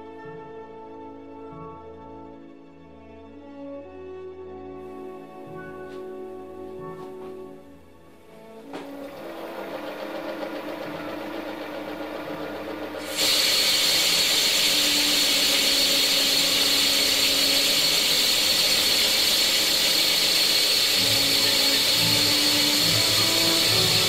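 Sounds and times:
high whine: 8.6s - 24.0s
lathe running: 8.6s - 24.0s
lathe tool cutting hiss: 8.7s - 24.0s.

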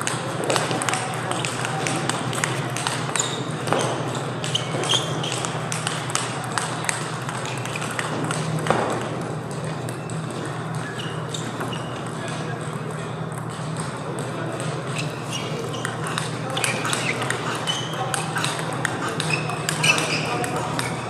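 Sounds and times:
table tennis balls clicking: 0.0s - 21.0s
faint voices: 9.6s - 21.0s.

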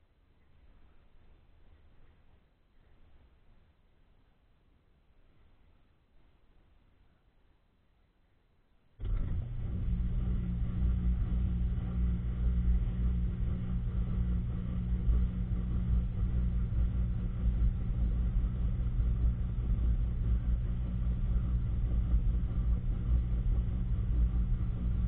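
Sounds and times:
washing machine hum: 9.0s - 25.0s.

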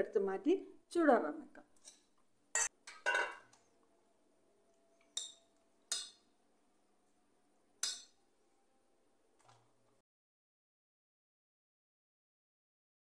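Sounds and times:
spoon clinking on metal pot: 2.6s - 3.5s, 5.0s - 6.3s, 7.8s - 8.2s.

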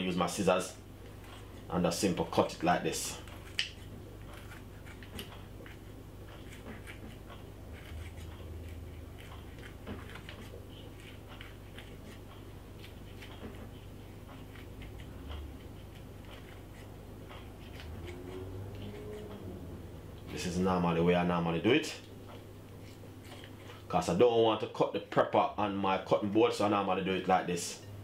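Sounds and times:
low hum: 7.2s - 23.9s.

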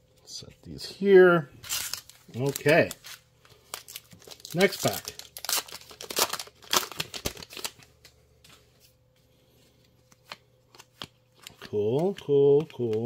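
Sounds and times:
plastic foil wrapper tearing: 1.6s - 7.8s
cards ticking when handled: 3.8s - 8.2s, 10.1s - 13.0s.

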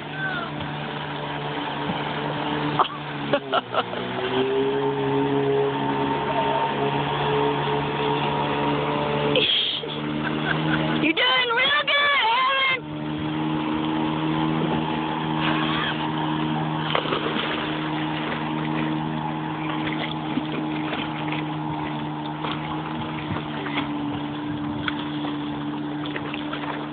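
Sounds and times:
motorboat engine humming: 0.0s - 26.9s
rushing water: 0.0s - 26.9s.

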